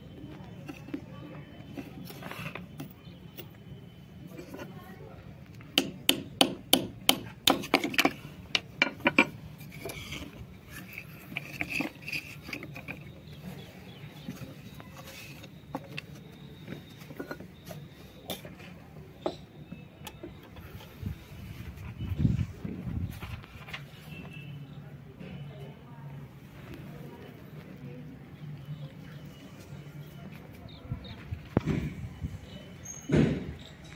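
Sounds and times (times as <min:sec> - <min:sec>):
knife scraping stone: 0:09.2 - 0:13.1.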